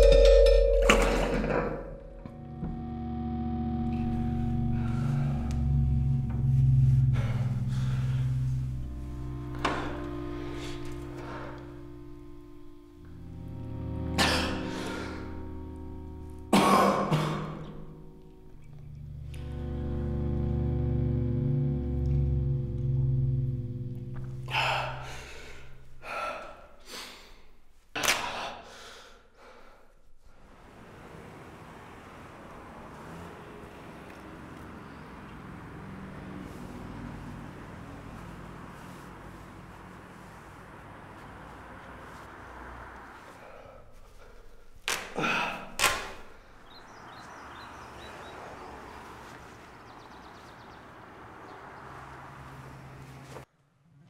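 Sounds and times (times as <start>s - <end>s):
held music chord: 0.0s - 26.2s, 31.8s - 44.8s
man breathing hard: 24.5s - 27.5s, 28.3s - 30.1s.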